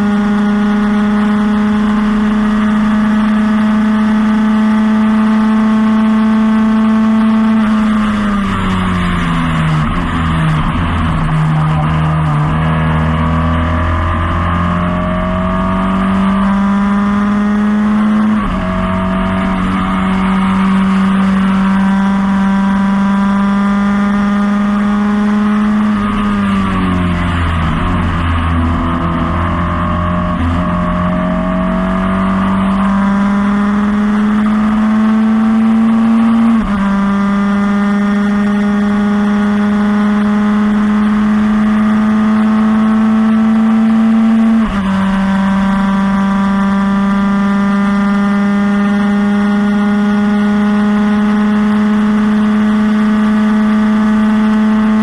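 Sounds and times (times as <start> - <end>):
race car engine revving: 0.0 - 55.0.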